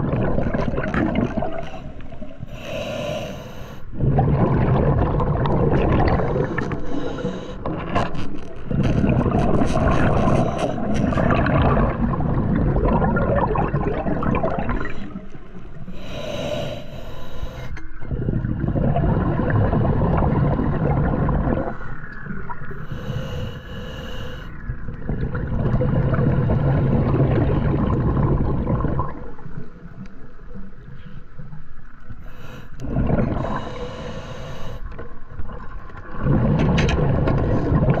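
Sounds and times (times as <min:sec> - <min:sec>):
exhaled bubbles rushing underwater: 0:00.0 - 0:02.5, 0:03.8 - 0:16.0, 0:17.8 - 0:23.6, 0:24.2 - 0:30.9, 0:32.8 - 0:38.0
regulator inhalation hiss: 0:02.5 - 0:03.8, 0:16.0 - 0:17.8, 0:22.8 - 0:24.5, 0:33.5 - 0:34.8.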